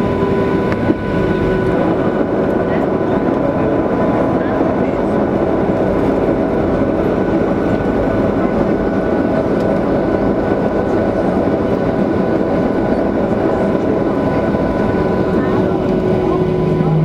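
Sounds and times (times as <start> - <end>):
jet engines rumbling and whining: 0.0 - 17.0.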